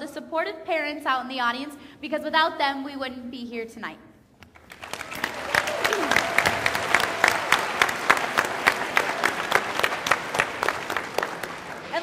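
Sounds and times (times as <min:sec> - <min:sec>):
loud steady hand clapping: 0:04.4 - 0:12.0
audience applauding: 0:04.5 - 0:12.0.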